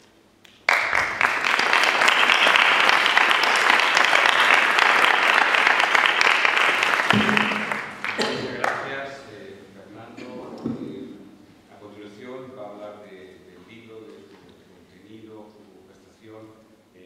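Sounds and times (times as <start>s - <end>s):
audience applause: 0.6s - 8.9s.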